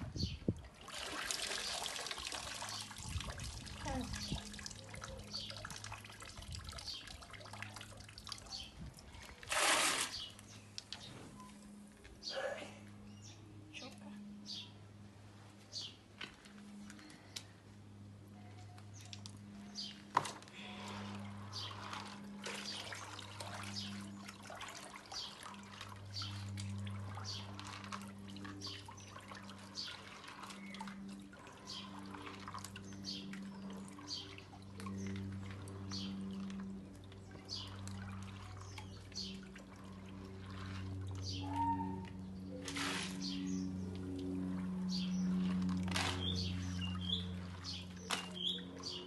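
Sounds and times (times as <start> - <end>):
water sloshing and splashing: 0.4 - 11.5, 18.9 - 49.0
steady low hum: 10.1 - 49.0.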